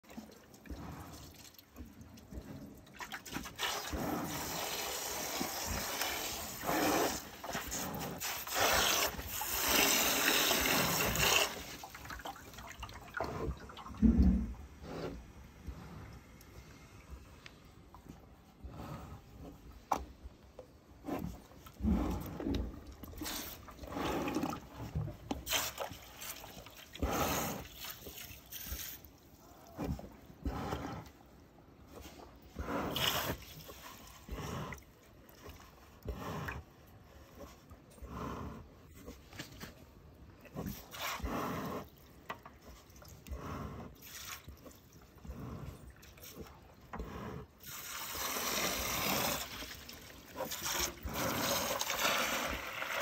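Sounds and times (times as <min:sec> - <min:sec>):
cow slurping and gulping: 0:00.0 - 0:53.0
water running from hose: 0:03.4 - 0:12.0, 0:47.6 - 0:53.0.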